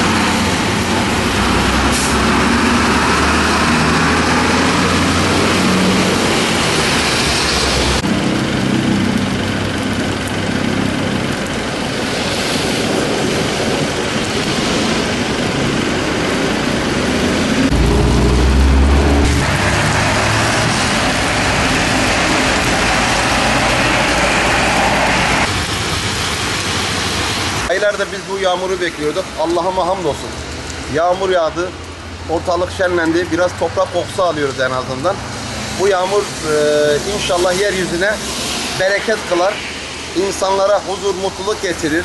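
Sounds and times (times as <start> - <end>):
heavy vehicle passing close: 0.0 - 11.5, 15.8 - 26.6
steady rain: 0.0 - 42.0
traffic engine noise: 0.0 - 42.0
tyres hissing on wet road: 0.0 - 42.0.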